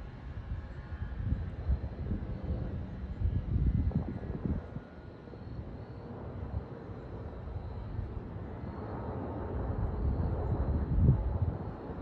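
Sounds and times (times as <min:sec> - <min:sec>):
wind buffeting microphone: 0:00.0 - 0:05.0, 0:09.0 - 0:12.0
distant jet engine rumble: 0:00.0 - 0:12.0.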